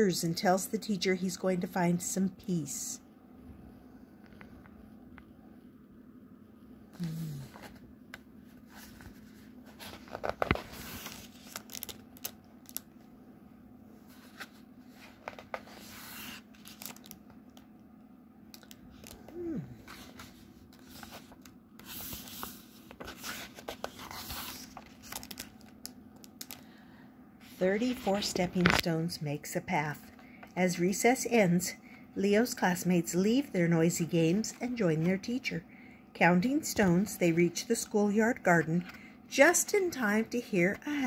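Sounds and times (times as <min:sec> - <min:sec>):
book pages turning: 0:06.9 - 0:13.0, 0:14.0 - 0:17.7, 0:18.5 - 0:26.6, 0:27.4 - 0:28.9.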